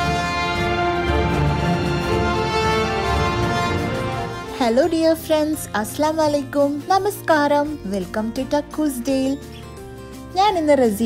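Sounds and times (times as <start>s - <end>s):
theme music with long held notes: 0.0s - 7.0s.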